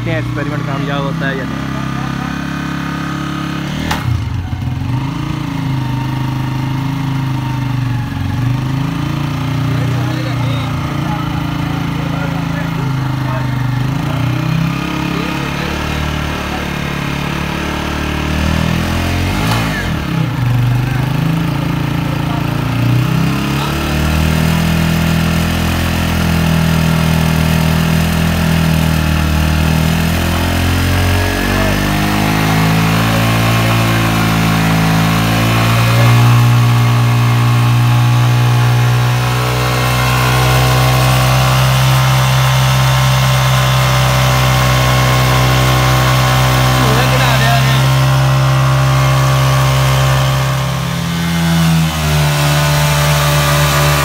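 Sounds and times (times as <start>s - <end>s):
motorcycle engine running under load: 0.0s - 54.0s.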